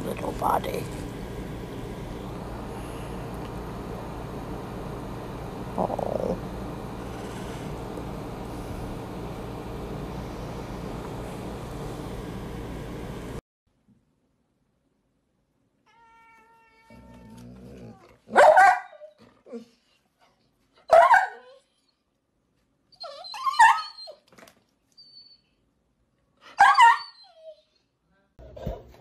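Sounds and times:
dog barking: 18.3 - 19.0, 20.9 - 21.5, 26.6 - 27.0.

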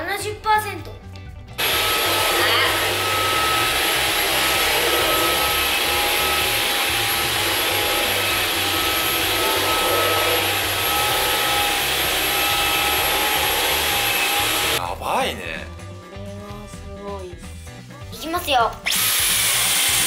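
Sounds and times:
vacuum cleaner running on carpet: 1.6 - 14.8, 18.9 - 20.0.

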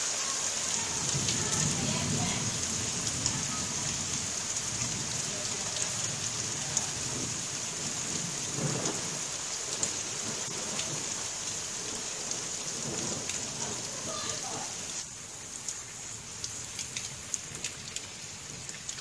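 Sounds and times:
steady rain: 0.0 - 19.0
thunder rumble: 0.7 - 14.8.

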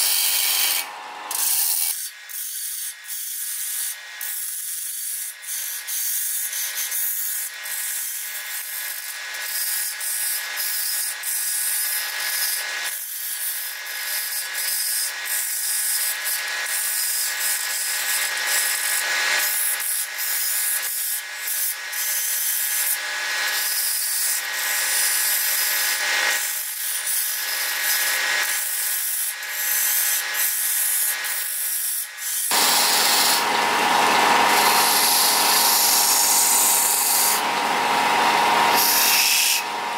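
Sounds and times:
tool scraping wood on lathe: 0.0 - 2.8, 24.4 - 39.9
lathe whine: 32.5 - 39.9.

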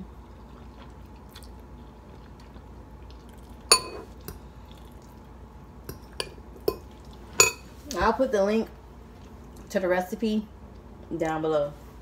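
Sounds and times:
metal fork clinking on dish: 3.7 - 4.1.

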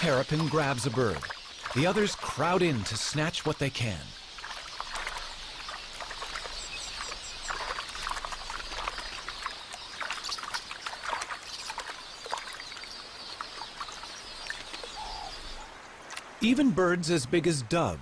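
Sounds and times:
shallow water splashing: 0.0 - 16.6
faint high bird chirps: 4.0 - 15.7.

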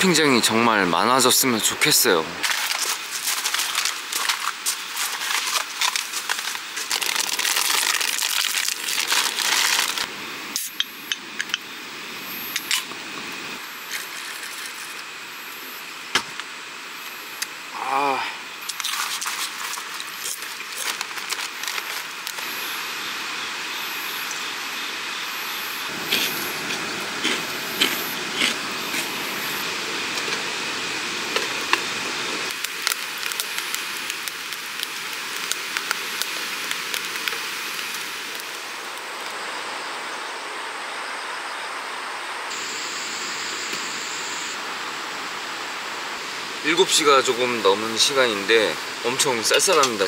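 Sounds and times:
steady fire hiss: 0.0 - 50.0
wood fire crackling and popping: 2.4 - 11.6, 18.6 - 22.6, 25.9 - 39.4.

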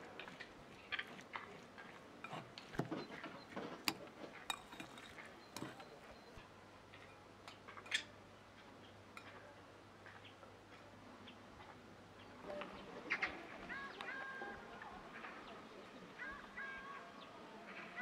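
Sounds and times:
utensil clinking glass bowl: 0.2 - 6.4.

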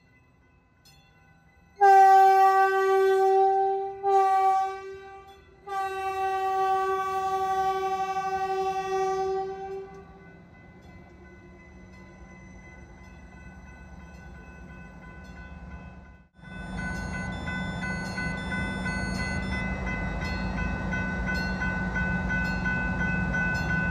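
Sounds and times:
train horn blast: 1.8 - 10.2.

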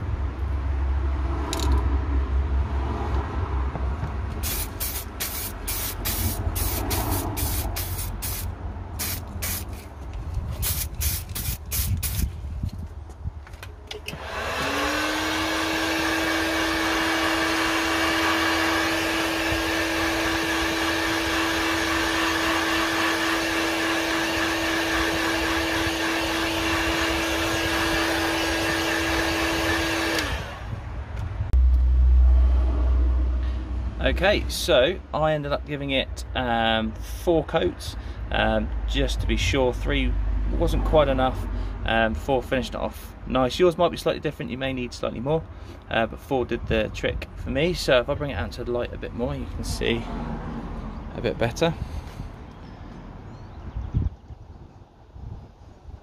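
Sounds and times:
heat gun blowing air: 4.4 - 9.9, 10.6 - 12.4, 14.1 - 30.8
low rumble: 30.6 - 34.5.

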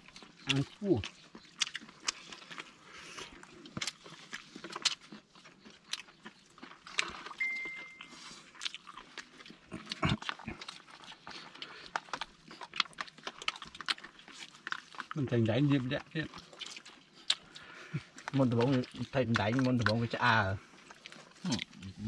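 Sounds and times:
fish torn and chewed: 0.0 - 22.0
short high beep: 7.4 - 8.2.

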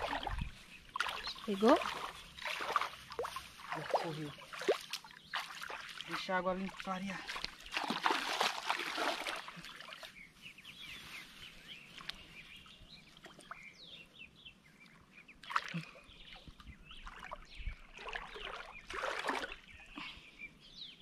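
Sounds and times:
water sloshing around hands: 0.0 - 10.3, 14.8 - 19.8
small birds chirping: 0.0 - 21.0.

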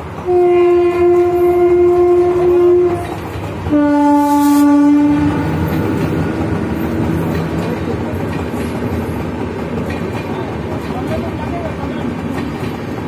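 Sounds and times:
train wheels clacking on rail joints: 0.0 - 13.0
locomotive horn blasts: 0.2 - 6.0.

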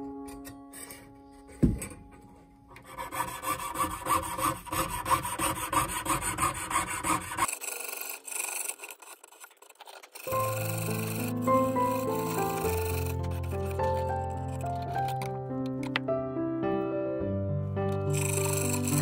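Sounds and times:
saw blade rasping through metal: 2.7 - 15.0, 18.1 - 19.0.

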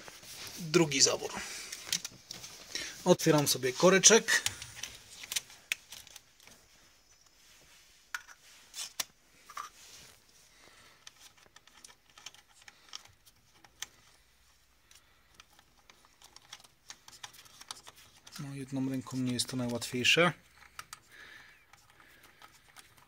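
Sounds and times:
clicks and scrapes of cap unscrewing: 8.1 - 9.8.

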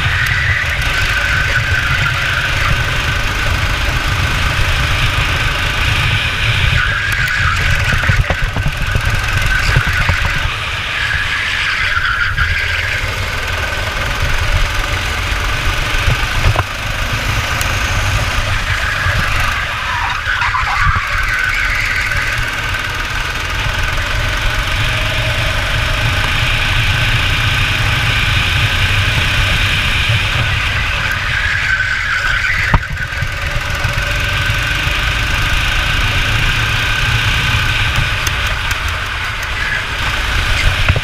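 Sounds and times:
go-kart engine racing: 0.0 - 41.0
wind rumble on microphone: 4.3 - 10.9.

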